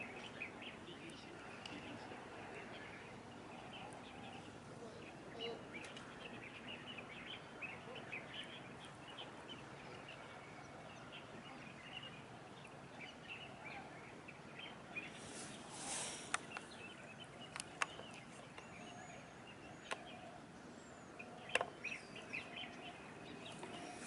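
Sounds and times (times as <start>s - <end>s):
small birds chirping: 0.0s - 24.0s
thin whistled bird call: 14.6s - 24.0s
brief hiss: 15.2s - 16.4s
sharp clicks: 17.5s - 18.6s.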